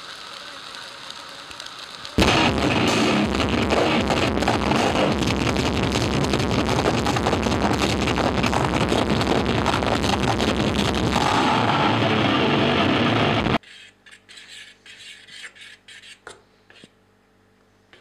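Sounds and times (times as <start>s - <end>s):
crowd noise: 0.0s - 13.6s
loud concert music: 2.2s - 13.6s.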